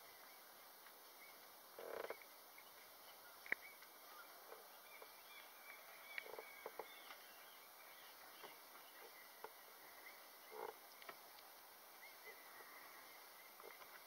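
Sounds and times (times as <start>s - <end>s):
faint high chirping: 2.1s - 11.2s.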